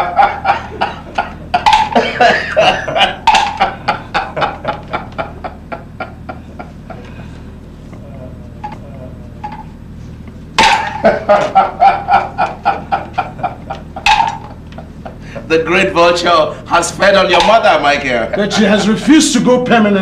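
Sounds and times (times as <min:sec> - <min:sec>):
man laughing: 0:00.0 - 0:07.4, 0:10.6 - 0:15.7, 0:17.9 - 0:19.1.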